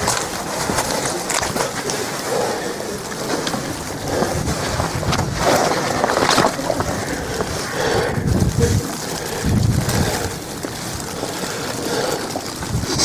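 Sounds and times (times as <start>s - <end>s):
wet snow ticking on umbrella: 0.0s - 13.0s
wind rushing over microphone: 3.0s - 13.0s.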